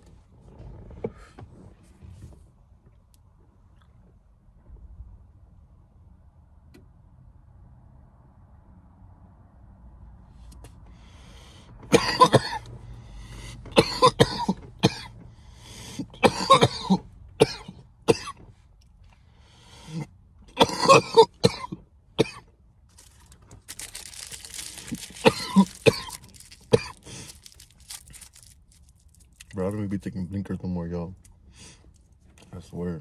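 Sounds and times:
man coughing: 11.9 - 12.6, 13.8 - 15.1, 16.2 - 18.3, 20.6 - 22.4, 25.2 - 27.0.

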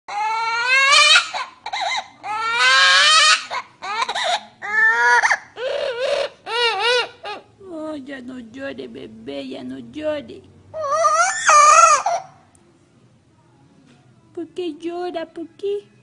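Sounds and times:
parrot mimicking baby crying: 0.1 - 7.5, 10.7 - 12.5.

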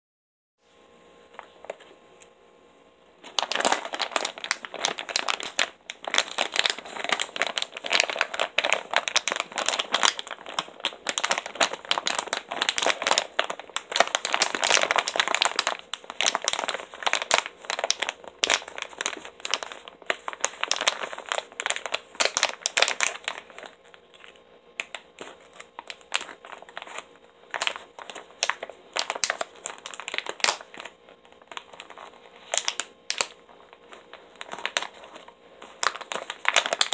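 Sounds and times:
foil bag crinkling: 3.2 - 36.9.

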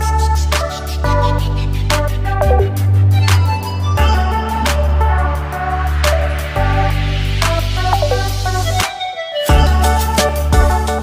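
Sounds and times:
music with deep bass and beat: 2.4 - 2.7, 7.8 - 8.8.

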